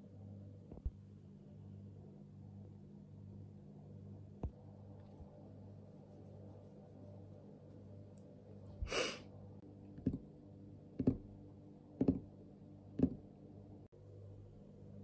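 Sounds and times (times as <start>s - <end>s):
low room hum: 0.0s - 15.0s
person sighing: 8.8s - 9.3s
fingers drumming on a tabletop: 9.9s - 10.3s, 11.0s - 11.3s, 12.0s - 12.3s, 13.0s - 13.3s.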